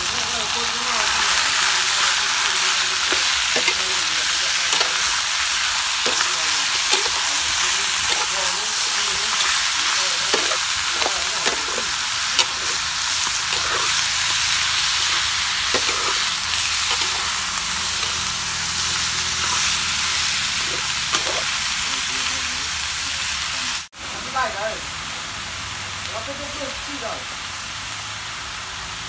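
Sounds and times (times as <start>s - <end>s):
meat sizzling in a wok: 0.0s - 29.0s
metal spatula scraping a pan: 1.3s - 21.6s.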